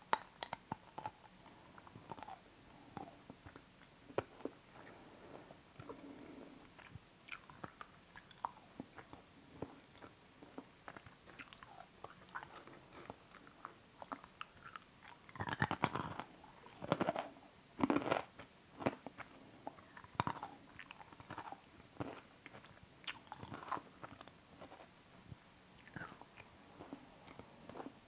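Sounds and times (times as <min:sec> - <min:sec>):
person chewing food: 0:00.1 - 0:24.9, 0:25.8 - 0:28.0
crunching bites: 0:15.4 - 0:19.2.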